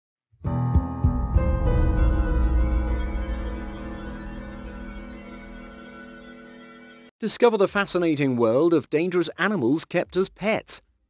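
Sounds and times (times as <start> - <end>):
intro music with low hits: 0.5 - 7.0.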